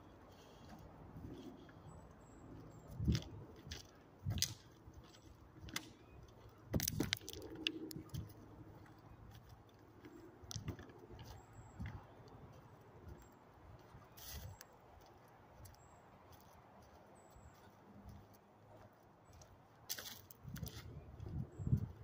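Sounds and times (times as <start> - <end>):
footsteps crunching on gravel: 3.0 - 12.8, 14.1 - 21.0.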